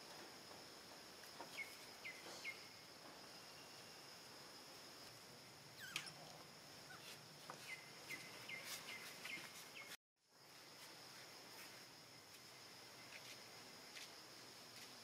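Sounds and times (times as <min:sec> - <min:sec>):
high drone of insects: 0:00.0 - 0:15.0
short high chirping calls: 0:05.8 - 0:06.3.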